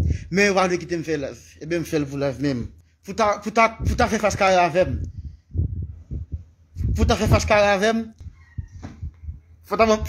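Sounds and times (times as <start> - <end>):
man talking: 0.1 - 5.1, 6.8 - 8.2, 9.6 - 10.0.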